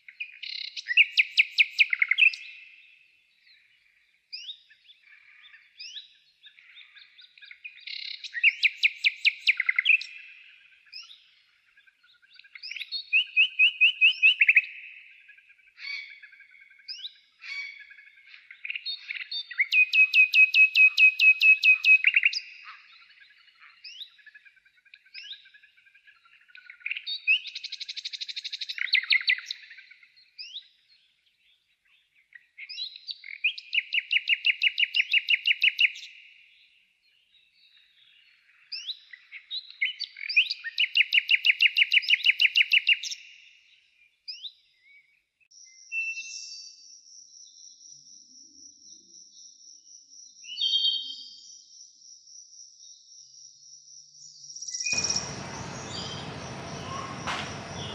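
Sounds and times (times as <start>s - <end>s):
bird chirps: 0.0s - 57.9s
songbird singing high notes: 54.7s - 57.9s.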